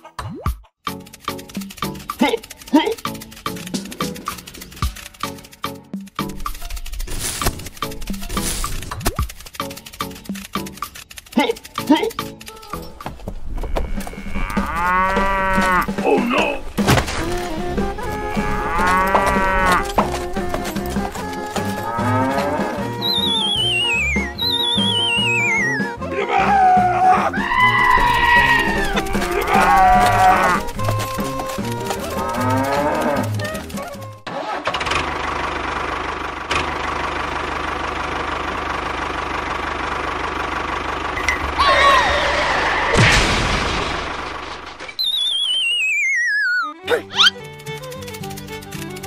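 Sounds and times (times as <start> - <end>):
tractor engine chugging: 0.9 - 26.0, 27.4 - 42.7, 47.0 - 49.0
cow mooing: 13.6 - 16.6, 18.2 - 20.0, 21.6 - 23.0, 26.1 - 33.7
light background music: 15.8 - 34.2, 46.8 - 49.0
wavering falling whistle tone: 23.0 - 25.9, 44.9 - 47.3.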